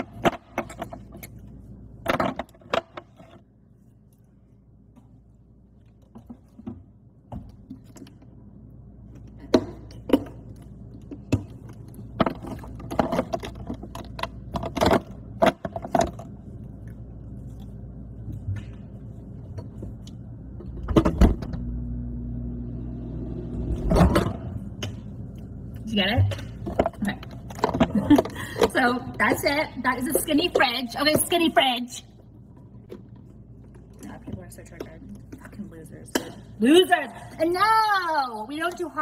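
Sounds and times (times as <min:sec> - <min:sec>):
fridge humming: 0:17.8 - 0:31.8.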